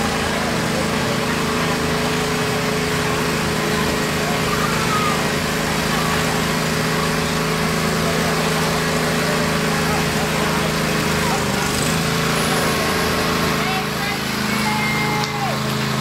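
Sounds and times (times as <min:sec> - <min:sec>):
riding lawn mower engine: 0:00.0 - 0:16.0.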